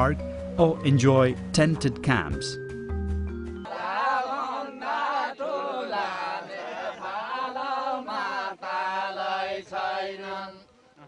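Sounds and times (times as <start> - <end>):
person singing a slow chant: 3.7 - 11.0.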